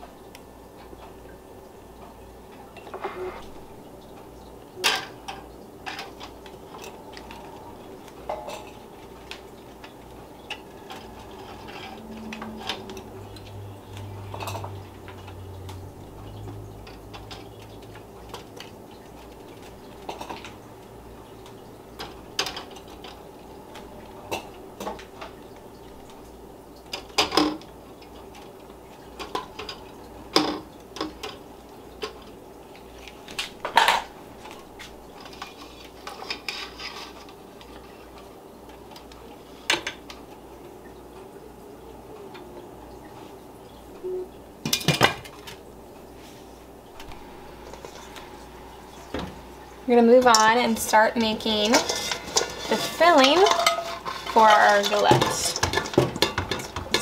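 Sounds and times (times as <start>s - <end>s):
glass jars clinking on metal: 51.4s - 57.0s.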